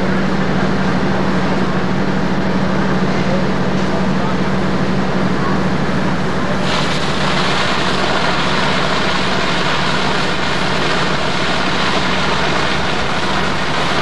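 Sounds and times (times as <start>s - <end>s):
fire engine pump droning: 0.0s - 14.0s
hoses spraying water: 6.5s - 14.0s.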